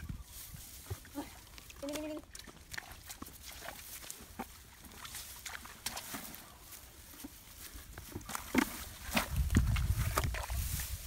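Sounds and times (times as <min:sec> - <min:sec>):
rustling of tall grass: 0:00.0 - 0:02.2, 0:03.3 - 0:11.0.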